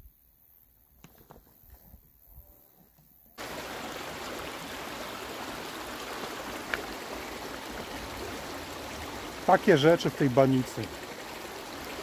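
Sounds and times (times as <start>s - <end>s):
water rushing in a stream: 3.4s - 12.0s.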